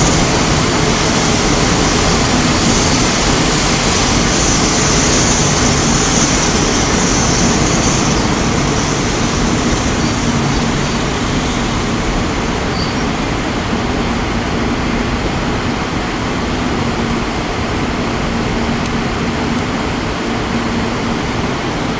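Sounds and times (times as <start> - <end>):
city traffic noise: 0.0 - 21.9
electric train running: 0.0 - 21.9
high hiss: 0.0 - 21.9.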